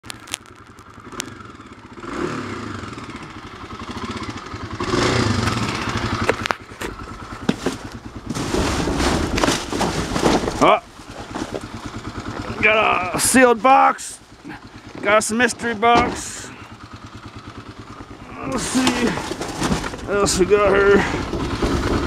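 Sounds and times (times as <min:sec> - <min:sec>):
boxes and bags rustling: 0:06.4 - 0:11.8, 0:18.6 - 0:20.1.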